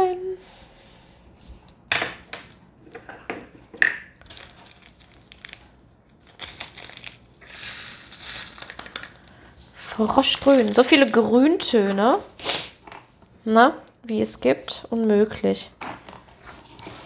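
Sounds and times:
plastic bag crinkling: 4.2 - 11.8
beads pouring into plastic container: 6.2 - 9.2
small beads clicking: 6.2 - 9.2.

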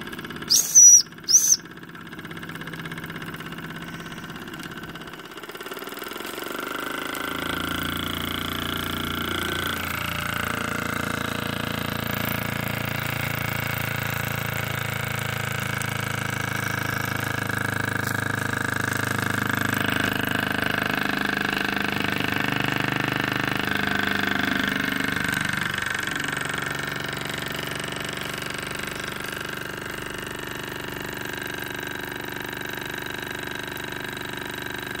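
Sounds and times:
toy steam engine running: 0.0 - 35.0.

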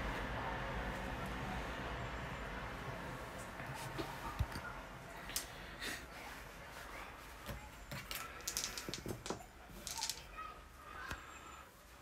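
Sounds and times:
plastic miniatures clicking on table: 8.1 - 10.3.

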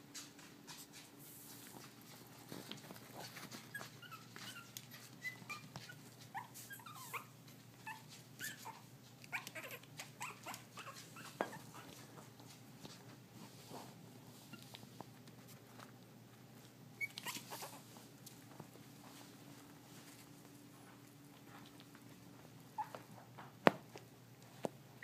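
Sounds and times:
puppies squealing and yipping: 3.6 - 12.0, 17.0 - 17.9.

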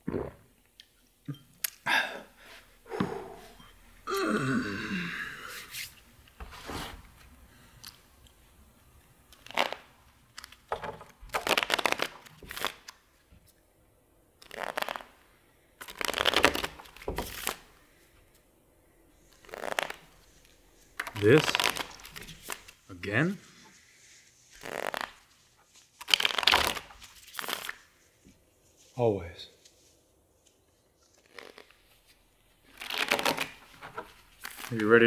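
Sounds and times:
playing cards shuffling: 9.4 - 13.0, 14.4 - 15.2, 15.8 - 17.8, 19.2 - 28.9, 29.6 - 35.0.

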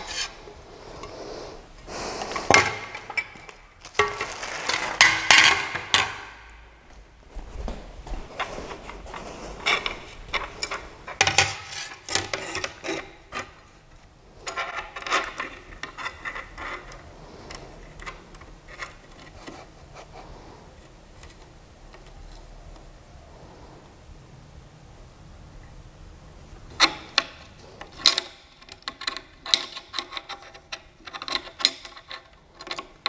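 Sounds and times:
rubbing scrapes: 0.0 - 5.0, 7.5 - 13.4.

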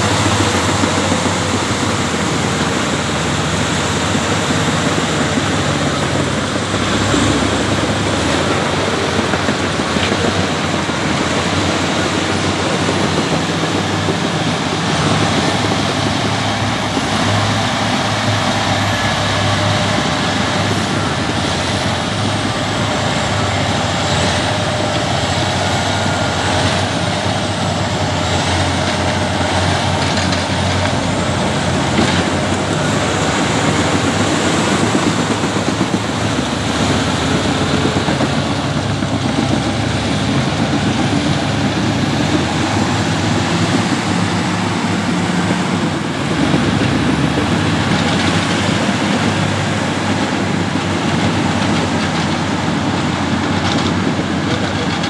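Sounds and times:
diesel engines running under load: 0.0 - 55.0
steel tracks clattering: 0.0 - 55.0.

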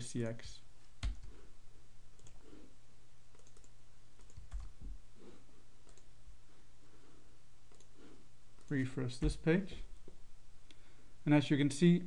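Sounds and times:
computer mouse clicks: 0.8 - 1.3, 2.2 - 2.4, 3.3 - 4.8, 5.8 - 6.1, 7.7 - 8.0.

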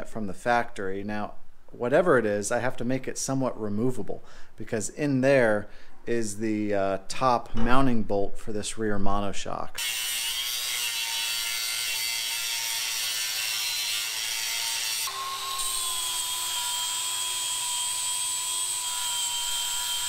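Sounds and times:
angle grinder grinding metal: 9.8 - 20.0.

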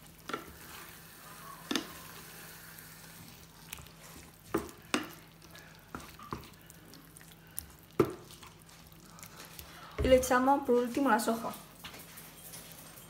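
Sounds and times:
spatula stirring sauce: 0.0 - 10.4
sauce sizzling: 0.0 - 10.6.

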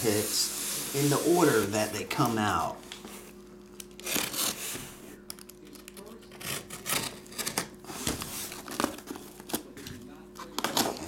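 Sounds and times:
packing tape tearing: 3.8 - 9.7.

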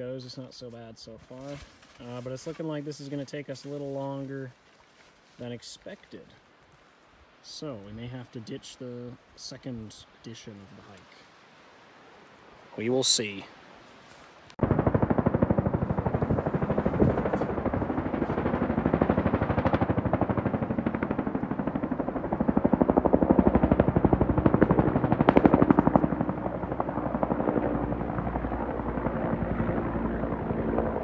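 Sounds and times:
helicopter flying past: 14.6 - 31.0.

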